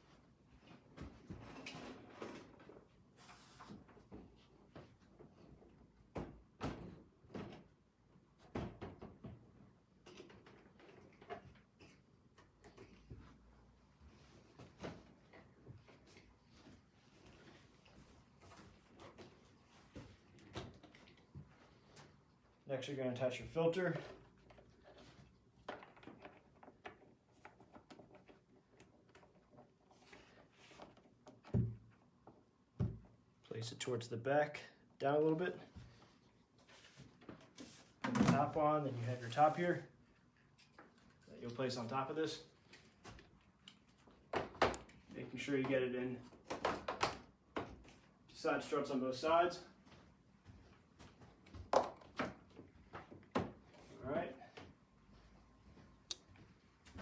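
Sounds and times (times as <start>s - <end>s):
plastic parts knocking and clunking: 23.9s - 33.2s, 43.0s - 48.0s, 51.5s - 53.7s.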